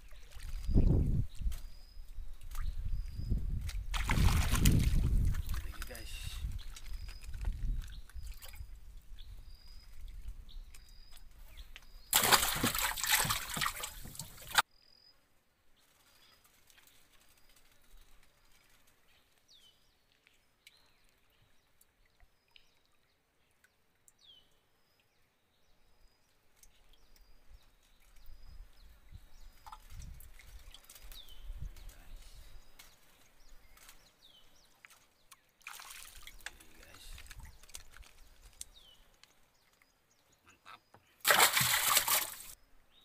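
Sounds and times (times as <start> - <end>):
water splashing around boat: 3.8 - 8.6, 12.1 - 14.6, 41.2 - 42.6.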